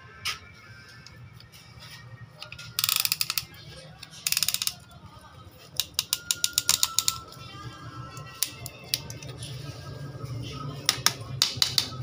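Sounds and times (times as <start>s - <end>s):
ratchet clicks: 2.5s - 3.5s, 4.2s - 4.8s, 5.8s - 7.2s, 8.2s - 9.2s.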